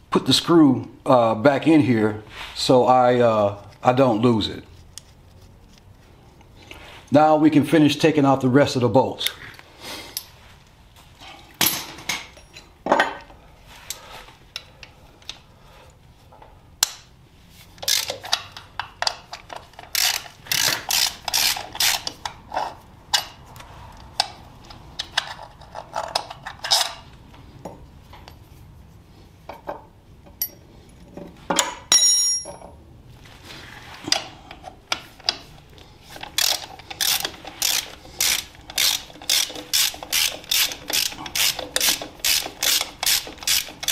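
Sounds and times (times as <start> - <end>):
socket ratchet clicking: 17.8 - 22.3, 36.1 - 43.9.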